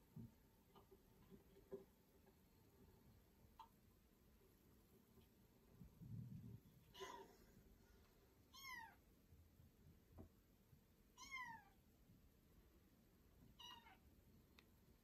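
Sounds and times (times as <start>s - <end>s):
kitten meowing: 8.5s - 9.0s, 11.2s - 11.8s, 13.6s - 14.0s.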